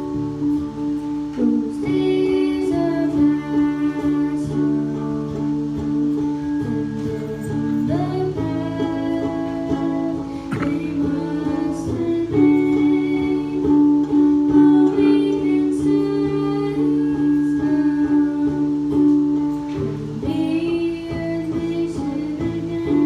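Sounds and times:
acoustic guitars strumming: 0:00.0 - 0:23.0
boy singing held notes: 0:07.1 - 0:18.9.

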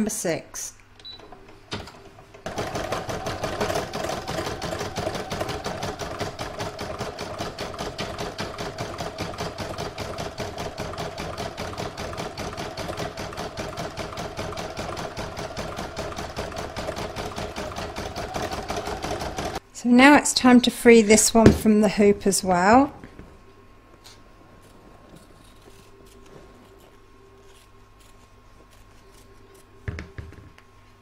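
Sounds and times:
embroidery machine stitching: 0:02.4 - 0:19.6.

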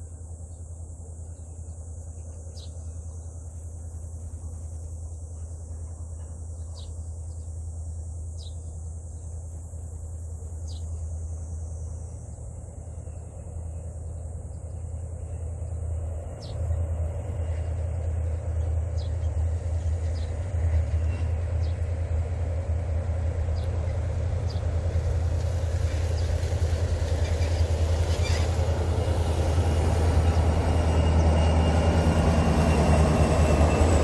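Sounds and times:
insects chorus: 0:00.0 - 0:34.0.

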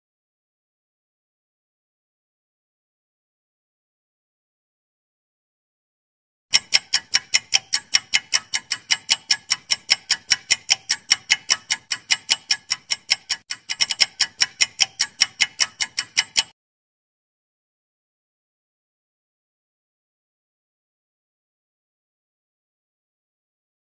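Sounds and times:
clock ticking: 0:06.5 - 0:16.6.

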